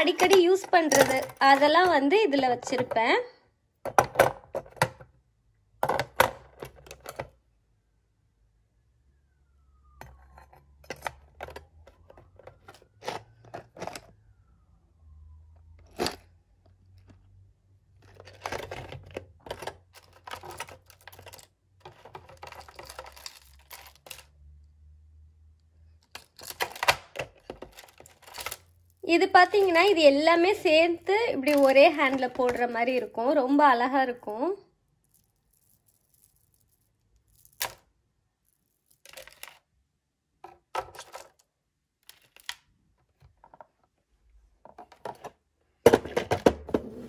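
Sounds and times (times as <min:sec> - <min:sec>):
plastic container handling: 0:31.4 - 0:33.2
metal bangles clinking: 0:34.9 - 0:37.6.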